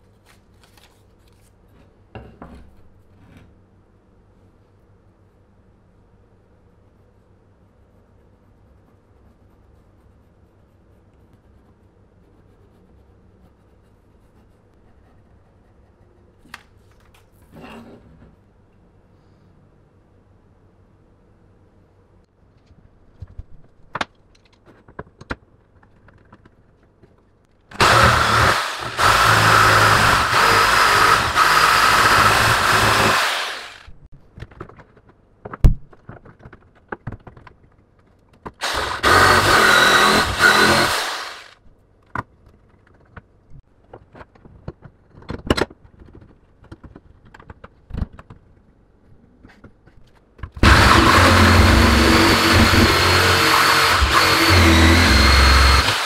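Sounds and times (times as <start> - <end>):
electric jigsaw cutting wood: 27.7 - 33.9, 38.6 - 41.6, 50.6 - 56.0.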